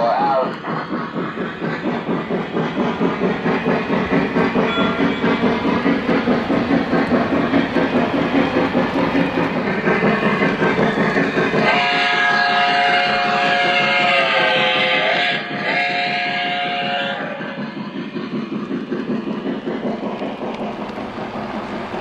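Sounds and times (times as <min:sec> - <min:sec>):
model train wheels clattering: 0:00.0 - 0:22.0
steam whistle blowing: 0:11.6 - 0:17.6.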